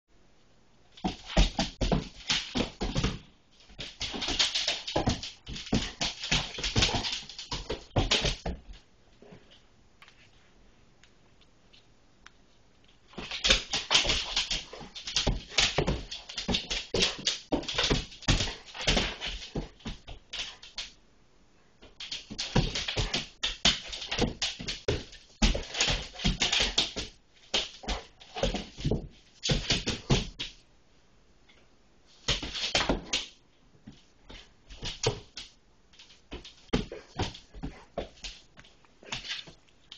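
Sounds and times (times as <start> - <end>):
dog claws clicking and scrabbling: 3.8 - 8.5, 13.2 - 20.9, 22.0 - 28.9.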